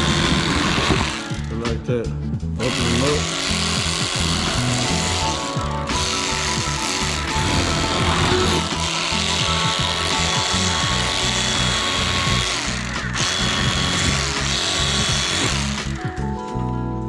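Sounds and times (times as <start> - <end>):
electric knife motor buzz: 0.0 - 1.5, 2.6 - 16.2
background music: 0.0 - 17.0.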